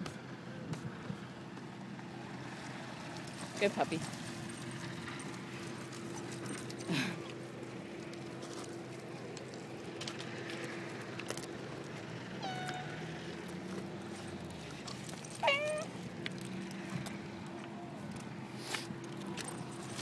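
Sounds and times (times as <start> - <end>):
high mewing animal cries: 12.4 - 13.0, 15.4 - 16.0.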